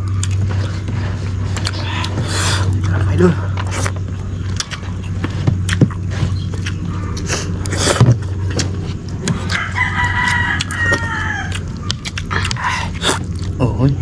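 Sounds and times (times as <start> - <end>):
steady low hum: 0.0 - 14.0
rooster crowing: 9.3 - 11.9.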